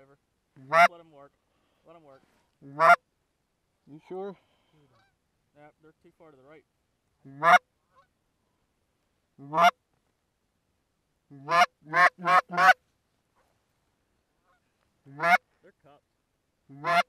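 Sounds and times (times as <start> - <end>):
goose call honks: 0.6 - 1.0, 2.6 - 3.0, 7.2 - 8.1, 9.4 - 9.8, 11.3 - 12.8, 14.5 - 15.5, 16.7 - 17.0.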